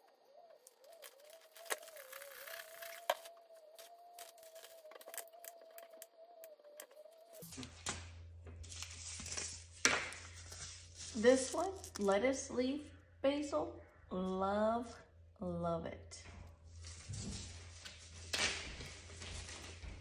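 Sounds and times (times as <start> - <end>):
rustling of seed packets: 0.0 - 7.8, 8.6 - 12.2
faint wavering tone: 0.0 - 9.5
low hum: 0.0 - 20.0.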